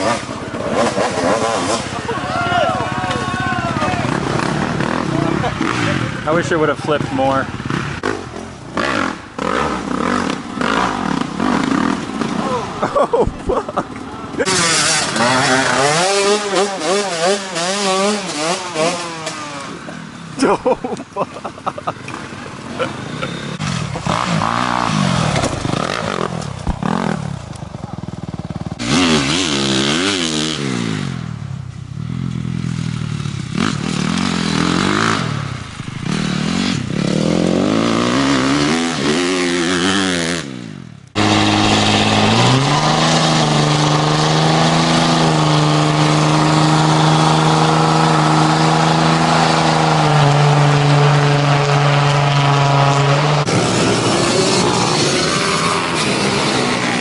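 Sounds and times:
dirt bike engines revving: 0:00.0 - 0:57.0
pickup truck engine revving high: 0:14.4 - 0:19.7, 0:41.2 - 0:57.0.

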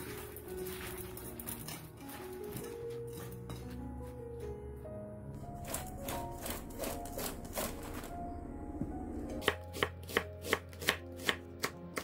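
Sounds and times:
knife slicing onion on wooden board: 0:09.4 - 0:12.0.

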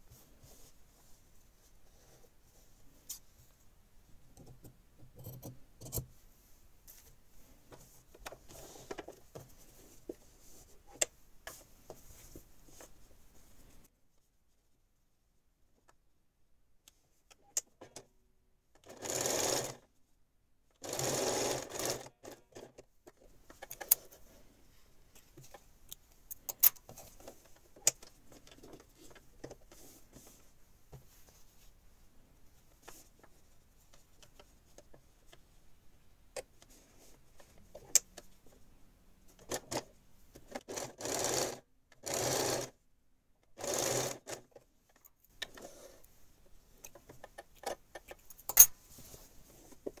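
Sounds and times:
sewing machine stitching: 0:18.8 - 0:19.8, 0:20.8 - 0:22.7, 0:40.5 - 0:42.7, 0:43.6 - 0:44.5.

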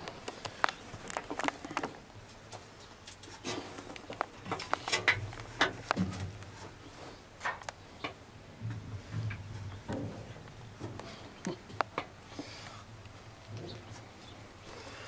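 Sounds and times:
low hum: 0:04.4 - 0:15.0.

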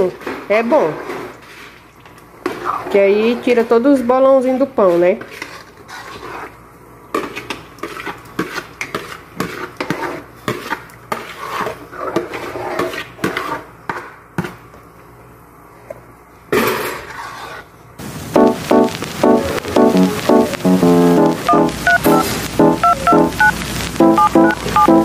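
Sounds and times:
metal spoon scraping a pan: 0:04.8 - 0:06.6, 0:07.2 - 0:13.7, 0:16.9 - 0:17.7
keyboard music: 0:18.3 - 0:25.0.

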